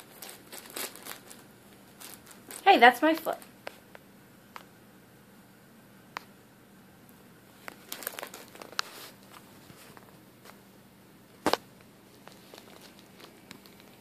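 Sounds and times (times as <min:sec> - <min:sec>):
plastic bag crinkling: 0:00.0 - 0:03.5, 0:07.6 - 0:10.2, 0:11.4 - 0:14.0.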